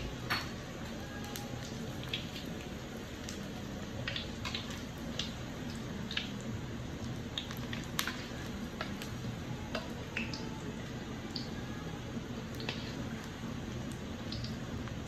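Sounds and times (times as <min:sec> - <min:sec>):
oil sizzling: 0:00.0 - 0:15.0
crackles and pops in oil: 0:04.0 - 0:10.4.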